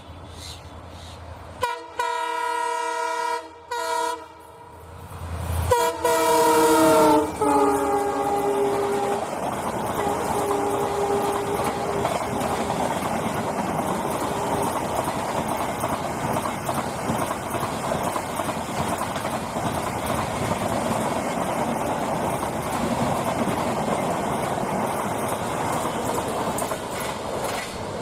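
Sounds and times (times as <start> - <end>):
train wheels on track: 0.0 - 28.0
train horn: 1.6 - 4.8, 5.7 - 12.9.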